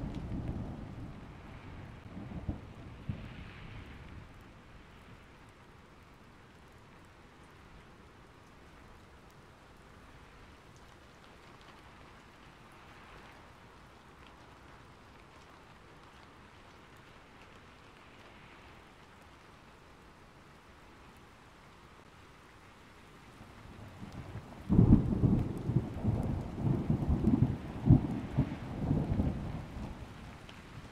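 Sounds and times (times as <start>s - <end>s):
thunder rumbling: 0.0s - 4.9s, 23.4s - 30.9s
faint steady rain: 0.0s - 30.9s.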